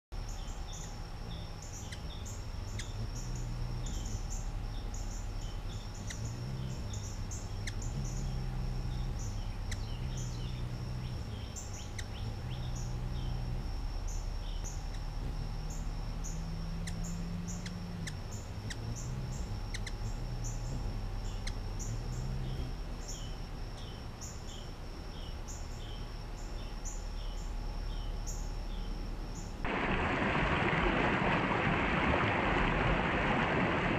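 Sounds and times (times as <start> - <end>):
hummingbird chip notes: 0.2 - 29.7
low hum: 0.2 - 33.9.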